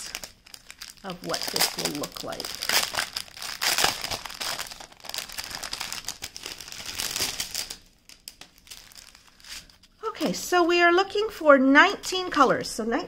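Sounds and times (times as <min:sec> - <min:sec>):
plastic packets crinkling: 0:00.0 - 0:09.9.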